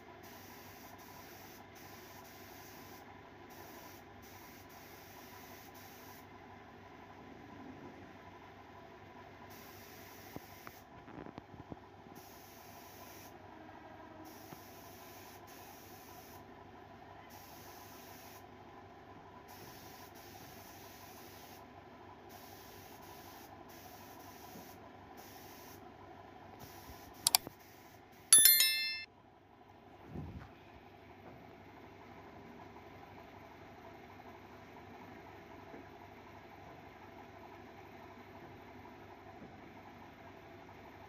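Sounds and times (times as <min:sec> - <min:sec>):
bright chiming bell: 0:28.4 - 0:29.1.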